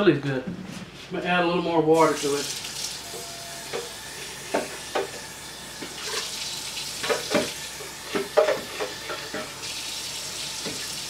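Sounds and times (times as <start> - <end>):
tap water running into container: 2.0 - 11.0.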